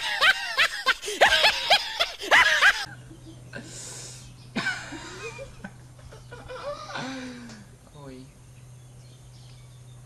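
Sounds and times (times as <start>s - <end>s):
laugh sound effect: 0.0s - 3.4s
breathy human laughter: 0.0s - 3.9s, 4.6s - 7.6s
low electrical hum: 0.0s - 10.0s.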